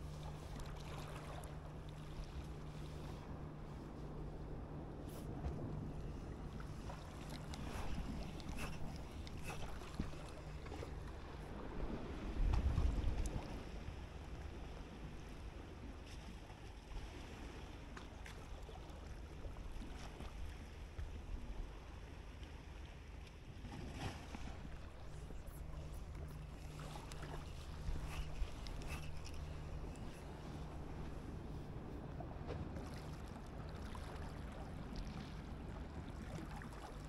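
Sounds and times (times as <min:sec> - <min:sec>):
faint engine hum: 0:00.0 - 0:37.0
fishing reel clicks and rubs: 0:27.1 - 0:30.2.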